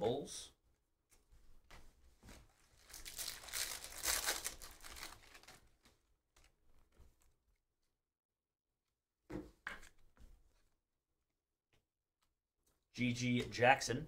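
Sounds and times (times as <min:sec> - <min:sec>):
plastic wrapper crinkling and tearing: 0:02.7 - 0:06.5.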